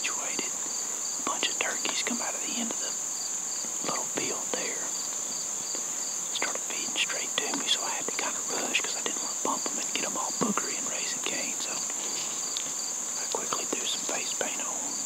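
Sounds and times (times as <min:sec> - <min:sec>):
crickets droning: 0:00.0 - 0:15.0
insect chirping in pulses: 0:00.0 - 0:15.0
soft ticks and rustles: 0:03.6 - 0:14.9.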